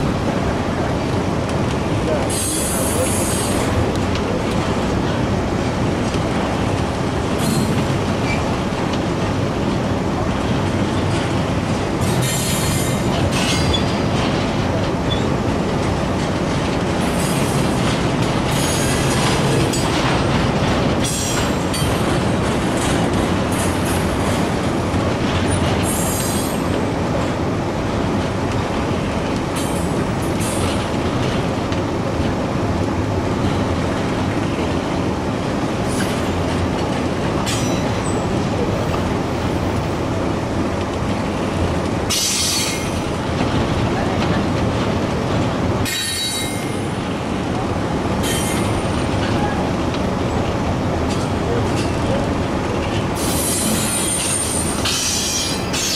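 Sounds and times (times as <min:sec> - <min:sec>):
freight train rumbling past: 0:00.0 - 0:55.9
wheels clickety-clack: 0:01.5 - 0:27.3, 0:48.2 - 0:55.9.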